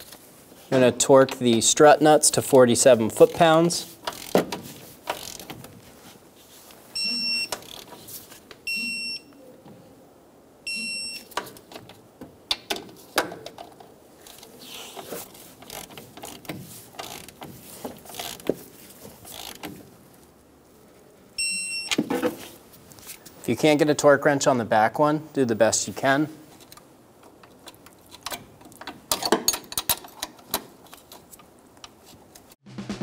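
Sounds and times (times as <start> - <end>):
wrench ratchet clicks: 4.1 - 4.4, 5.1 - 5.5, 15.6 - 16.4, 17.0 - 17.4, 19.3 - 19.7
electronic torque wrench beeping: 7.0 - 7.7, 8.7 - 9.3, 10.7 - 11.3, 21.4 - 22.0.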